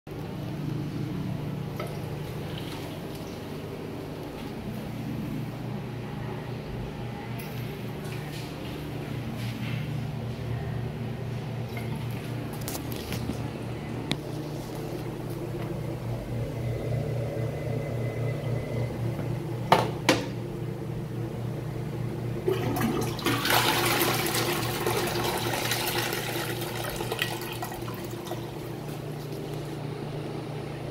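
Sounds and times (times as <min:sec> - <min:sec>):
steady low hum: 0:00.1 - 0:30.9
toilet flushing: 0:01.7 - 0:03.4, 0:22.4 - 0:29.8.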